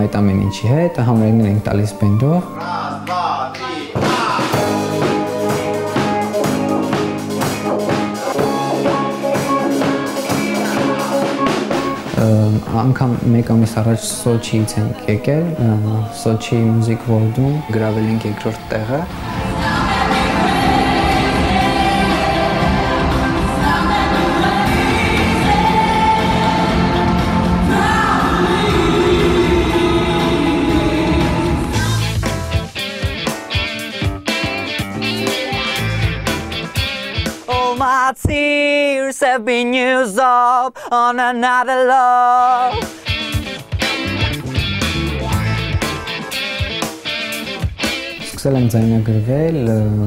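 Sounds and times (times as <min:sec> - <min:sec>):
band music: 0:00.0 - 0:38.1, 0:42.5 - 0:50.0
drum kit steady beat: 0:03.6 - 0:12.9, 0:19.0 - 0:38.4, 0:42.7 - 0:48.9
person singing long notes: 0:14.4 - 0:32.1.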